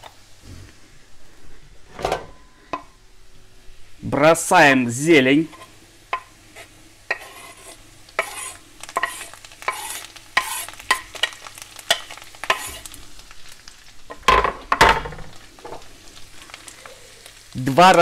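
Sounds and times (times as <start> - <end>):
garlic sizzling in a frying pan: 0.0 - 18.0
knife scraping a cutting board: 5.5 - 5.7, 6.5 - 10.8.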